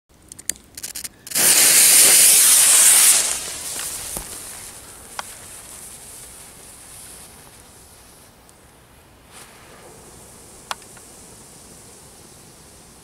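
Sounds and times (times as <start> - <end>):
firecracker fuse crackling: 0.6 - 8.6
loud even hiss: 0.8 - 13.0.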